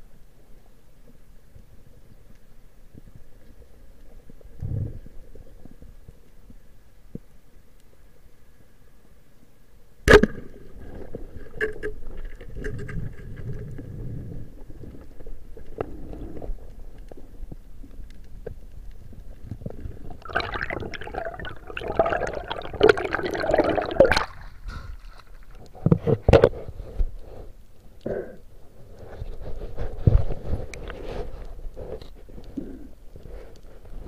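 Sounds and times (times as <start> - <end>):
underwater scraping and clattering: 10.7 - 17.3, 18.2 - 27.5.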